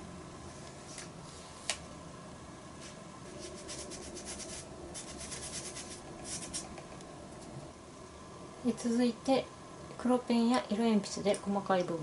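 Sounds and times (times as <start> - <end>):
paper rubbing and rustling: 2.8 - 6.7.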